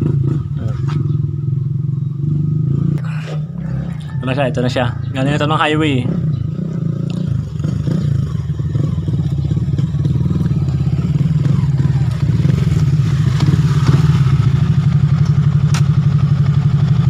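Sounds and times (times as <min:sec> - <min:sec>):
motorcycle engine running: 0:00.0 - 0:17.0
sharp click: 0:15.2 - 0:16.0.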